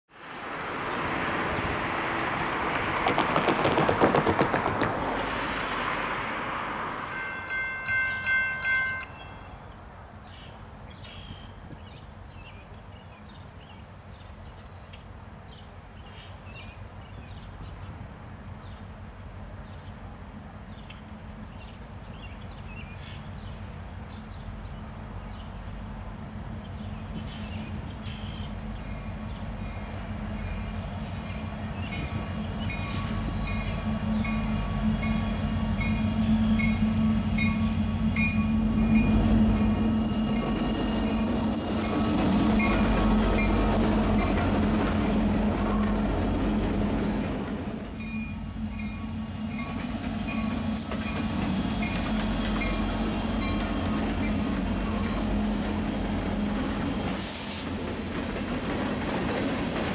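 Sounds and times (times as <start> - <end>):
train rumble and clatter: 0.4 - 59.9
birds chirping: 6.6 - 18.0, 20.6 - 46.2
diesel locomotive horn blasts: 7.1 - 9.4, 28.1 - 41.9.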